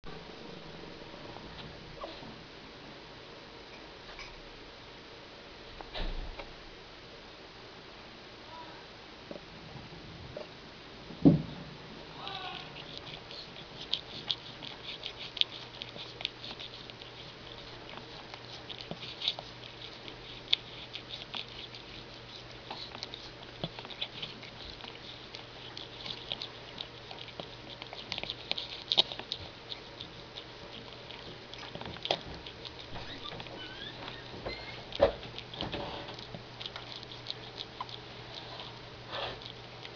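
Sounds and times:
kittens squeaking: 12.5 - 38.8.

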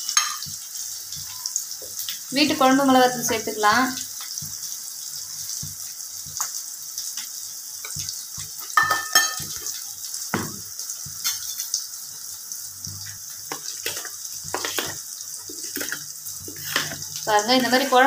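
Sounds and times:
oil sizzling: 0.0 - 18.0
metal spoon scraping a bowl: 15.7 - 17.9.

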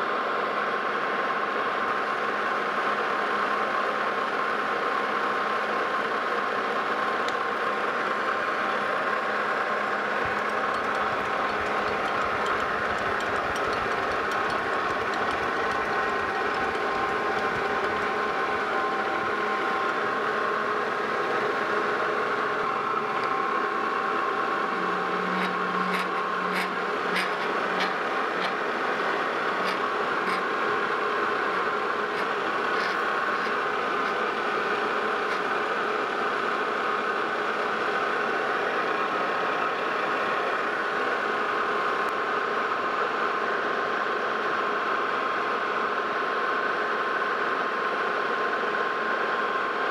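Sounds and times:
metal lathe whining: 7.1 - 42.0.

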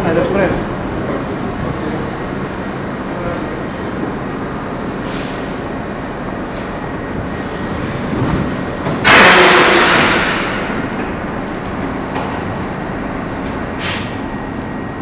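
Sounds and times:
wheels rumbling on rail: 0.0 - 15.0
high wheel squeal: 0.4 - 2.5, 3.2 - 3.8, 6.8 - 8.4
brake hiss: 13.8 - 14.2.

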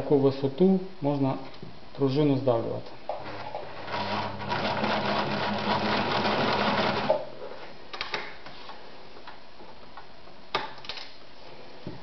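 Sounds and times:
sewing machine stitching leather: 3.1 - 7.2.

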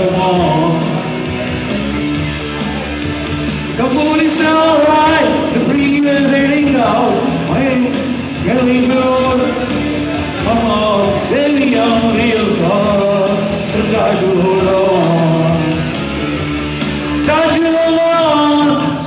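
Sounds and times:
man singing into microphone: 0.0 - 1.3, 3.8 - 15.9, 17.2 - 19.0
rock backing track: 0.0 - 19.0.

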